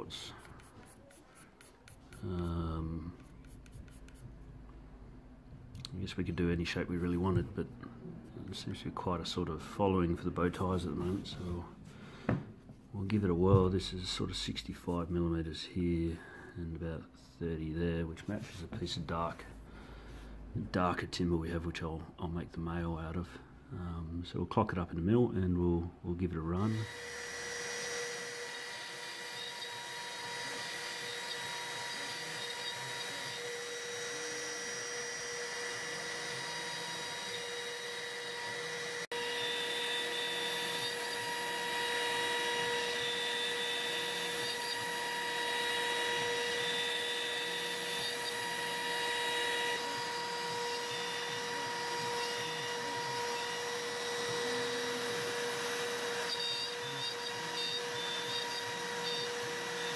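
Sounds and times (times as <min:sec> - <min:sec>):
router spindle whining: 0:26.6 - 0:59.9.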